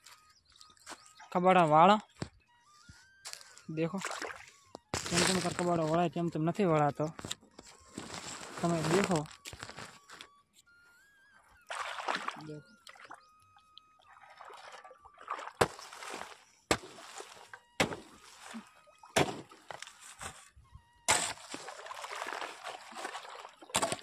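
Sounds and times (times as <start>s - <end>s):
water sloshing: 3.9s - 5.7s, 11.6s - 20.4s, 21.1s - 24.0s
shovel scraping wet mud: 5.0s - 6.0s, 8.0s - 9.9s, 11.7s - 12.4s, 14.3s - 24.0s.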